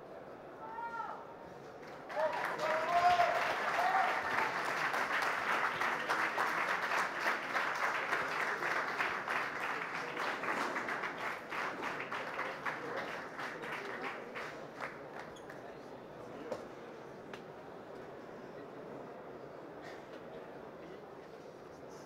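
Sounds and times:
audience applauding: 2.0 - 15.4.

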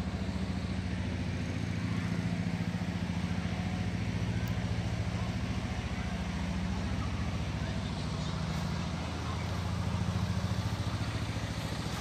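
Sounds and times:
engine running at low speed: 0.0 - 12.0.

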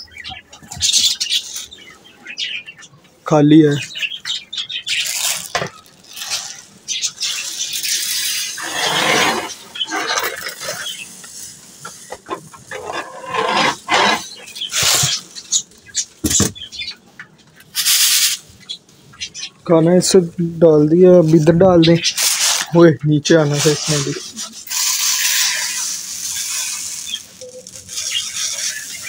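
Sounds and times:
dry seed pouring and rattling: 5.0 - 12.1, 23.4 - 29.0.

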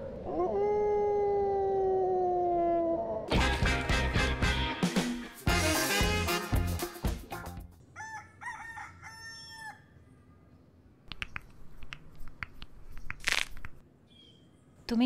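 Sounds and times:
theme music: 3.3 - 7.8
rooster crowing: 7.9 - 10.0.

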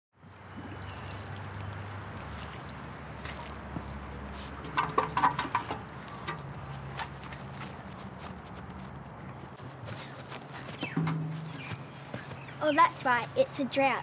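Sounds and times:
water pouring from watering can: 0.5 - 5.5.

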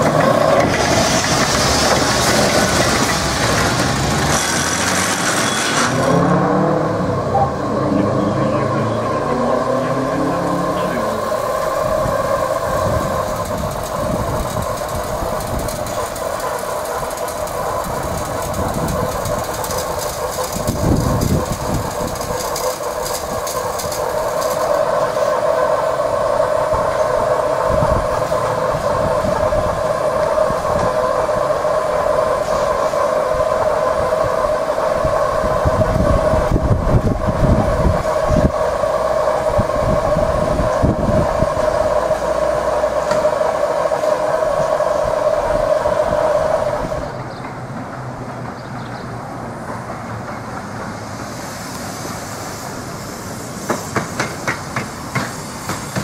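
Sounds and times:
steam hissing from locomotive: 0.0 - 6.7, 9.0 - 48.6, 49.5 - 56.0
wind rumbling on microphone: 6.0 - 47.4.

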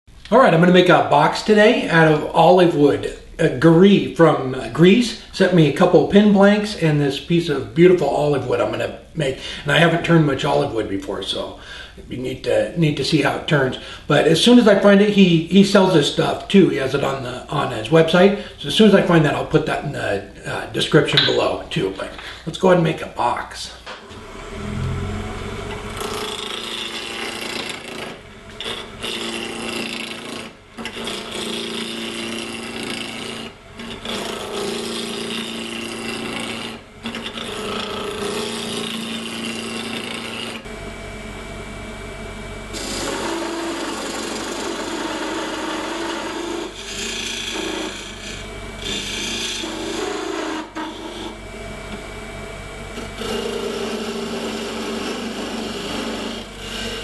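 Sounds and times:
lathe motor hum: 23.2 - 57.0
turning tool rasping wood: 24.0 - 40.7, 42.7 - 52.0, 52.9 - 57.0.

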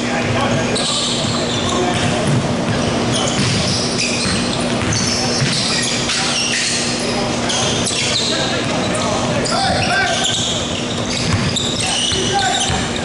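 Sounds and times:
sneakers squeaking: 0.0 - 13.0
basketball bouncing: 1.2 - 5.8, 11.2 - 13.0.

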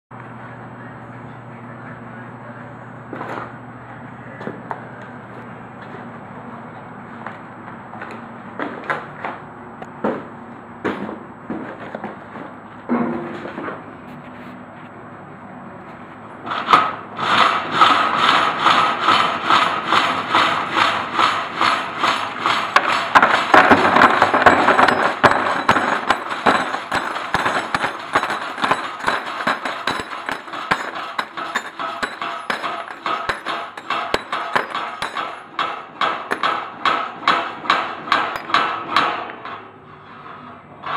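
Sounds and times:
metal scrap clattering in trough: 11.7 - 13.8, 16.5 - 40.9
rhythmic metallic knocking: 17.2 - 39.6.

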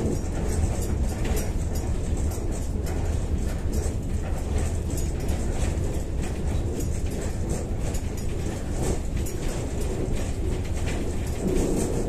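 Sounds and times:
tram wheels rumbling on rails: 0.0 - 12.0.

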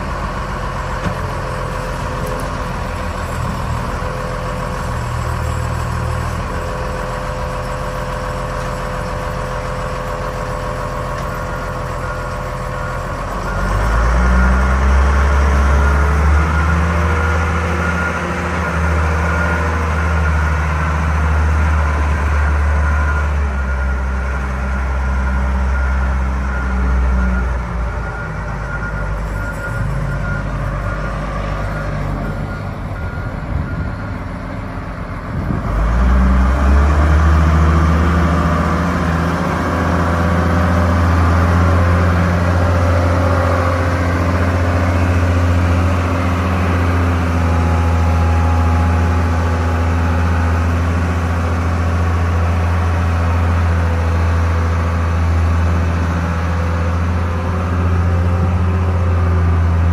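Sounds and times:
diesel engine revving: 0.0 - 59.9
backup alarm beeping: 25.7 - 34.3.

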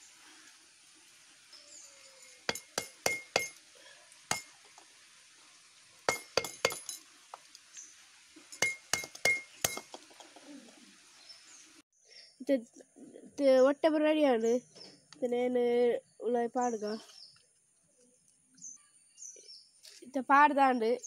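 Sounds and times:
metal tool clinking on coconut shell: 2.5 - 3.6, 6.1 - 7.0, 8.5 - 10.0.

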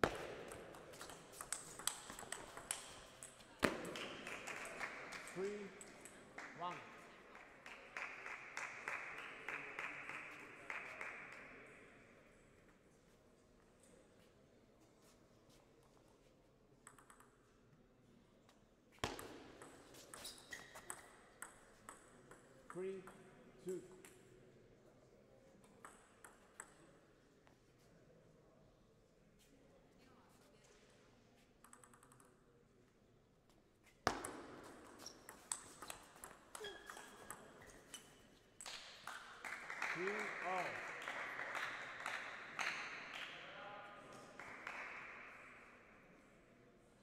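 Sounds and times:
table tennis ball hits: 0.0 - 4.8, 19.0 - 23.2, 34.1 - 39.3
table tennis ball clicking: 0.5 - 3.4, 31.6 - 32.4.

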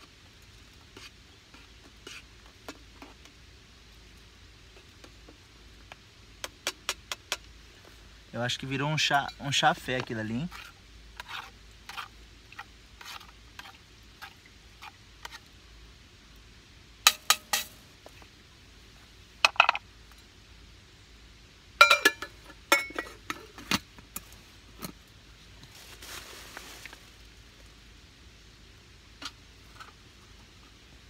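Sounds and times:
light taps on camp pot: 0.9 - 3.4, 4.7 - 7.9, 17.0 - 18.2, 21.8 - 25.7
pot and mug clinking: 21.8 - 23.6.

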